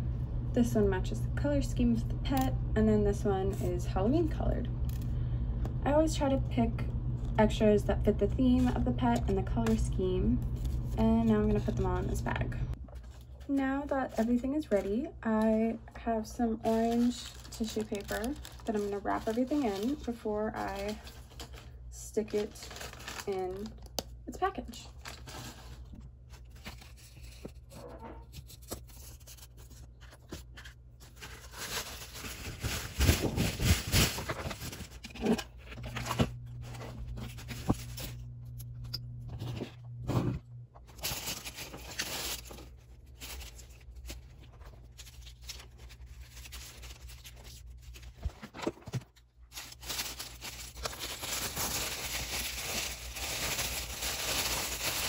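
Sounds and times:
tissue paper crinkling: 16.6s - 23.9s, 24.9s - 27.7s, 28.4s - 38.2s, 40.9s - 55.0s.

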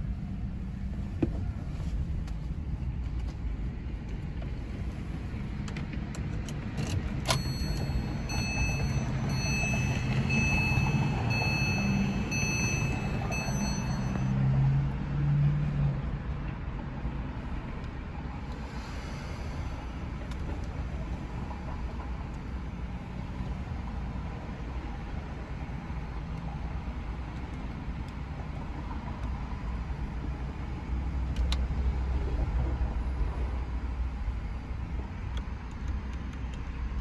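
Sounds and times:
car engine rumble in cabin: 0.0s - 37.0s
high electronic chime: 7.3s - 14.4s.

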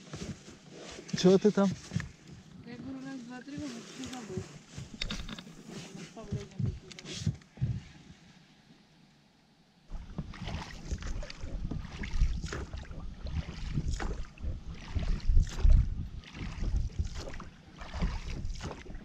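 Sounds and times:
oars pulling through water: 0.0s - 8.2s, 9.9s - 19.0s
low knocks from boat: 9.9s - 19.0s
water splashing: 9.9s - 19.0s.

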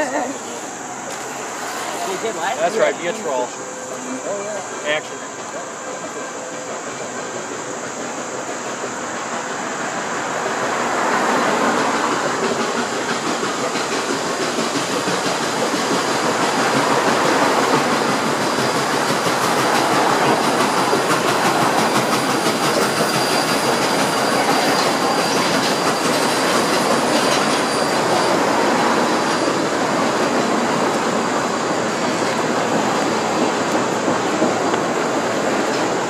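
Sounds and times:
train wheels rumbling on rails: 0.0s - 36.0s
faint high wheel squeal: 19.8s - 30.5s.

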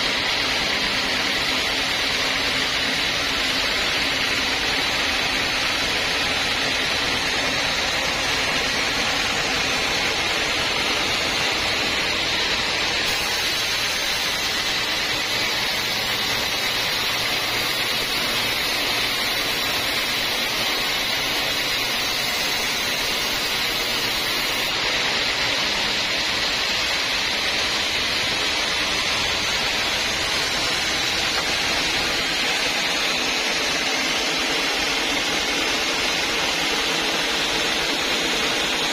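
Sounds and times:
band sawmill cutting wood: 0.0s - 38.9s.

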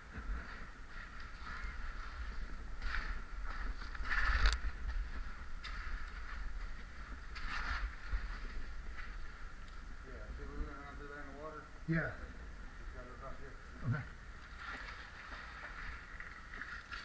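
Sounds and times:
shuffling and scraping on gravel: 0.1s - 9.3s, 14.4s - 17.0s.

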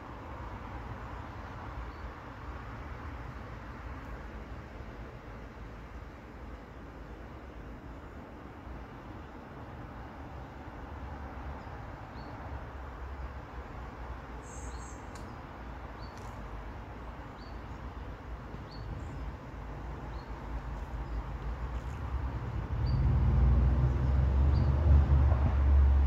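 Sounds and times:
small bird chirping: 14.4s - 15.4s.

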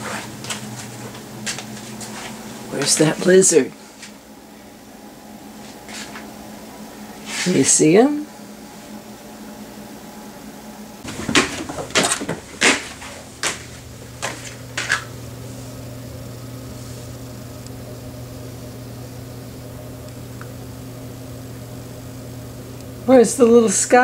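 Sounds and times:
low electrical hum: 0.0s - 24.0s
knocks and clacks: 11.1s - 15.0s.

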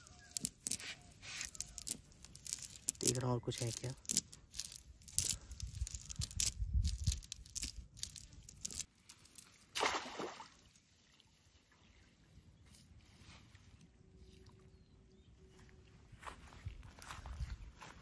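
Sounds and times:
water sloshing in a river: 9.6s - 11.7s
loud splash: 9.8s - 10.6s.

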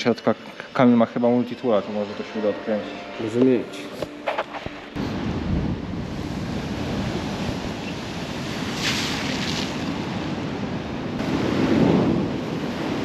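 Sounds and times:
wind buffeting microphone: 5.0s - 13.0s
sea waves washing against a wall: 6.0s - 10.3s.

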